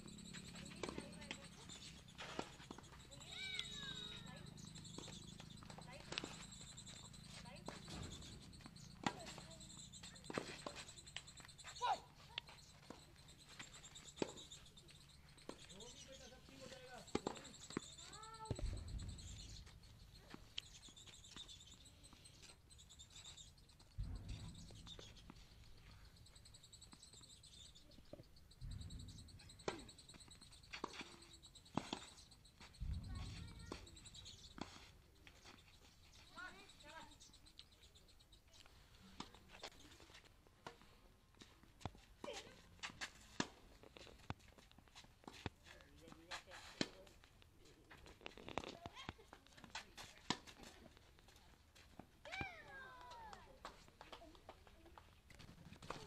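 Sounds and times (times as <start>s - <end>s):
rapid high-pitched chirping: 0.0s - 40.1s
tennis balls struck by rackets: 5.7s - 6.4s, 7.6s - 9.5s, 16.8s - 19.0s.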